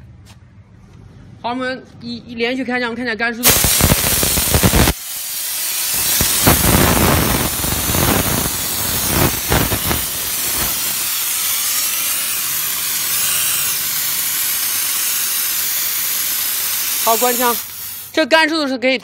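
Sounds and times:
steam jet hissing: 3.4s - 18.2s.

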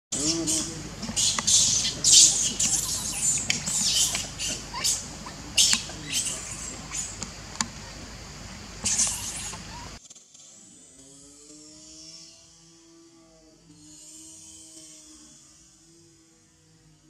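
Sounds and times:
baby monkey screaming: 0.2s - 7.2s, 8.8s - 10.0s.

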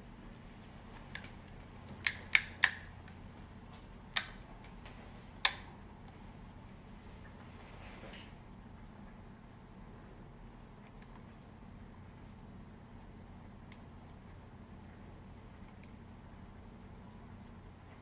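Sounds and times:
sharp plastic clicks: 2.0s - 3.2s, 4.1s - 4.5s.

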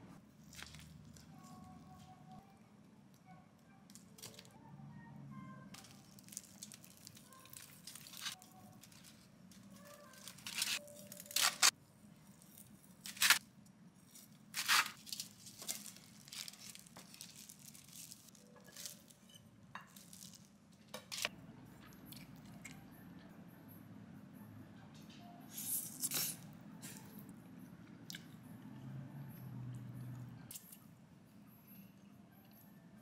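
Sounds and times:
foil crinkling: 5.8s - 11.7s, 14.2s - 19.2s
plastic gloves rustling: 5.8s - 13.4s, 14.0s - 20.7s.

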